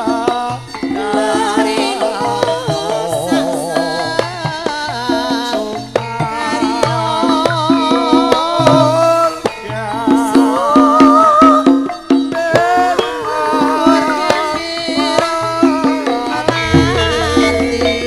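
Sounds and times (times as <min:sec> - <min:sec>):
hand drum strokes: 0:00.0 - 0:18.0
woman singing: 0:00.0 - 0:18.0
gamelan playing: 0:15.9 - 0:18.0.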